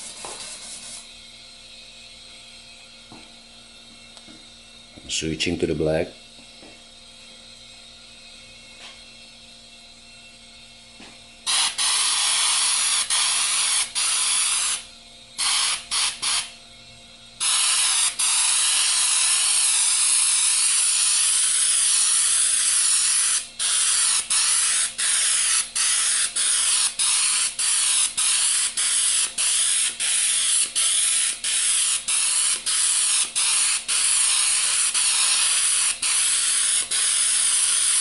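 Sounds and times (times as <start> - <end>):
airbrush air hissing: 0.0 - 1.2, 11.4 - 16.6, 17.4 - 38.0.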